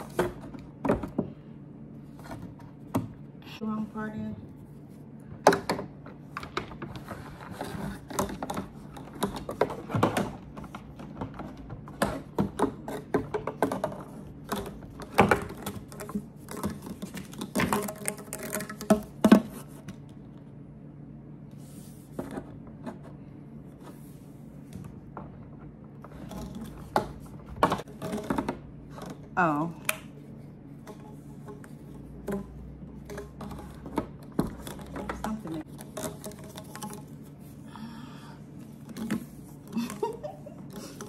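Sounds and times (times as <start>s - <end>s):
plastic parts knocking and rattling: 0.0s - 1.4s, 5.3s - 20.1s, 24.8s - 30.0s, 30.8s - 37.5s, 38.7s - 41.0s.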